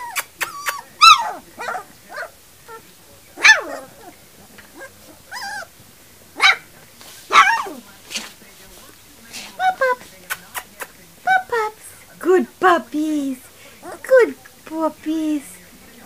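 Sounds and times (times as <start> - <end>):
puppies yipping: 0.0 - 5.8, 6.4 - 7.8.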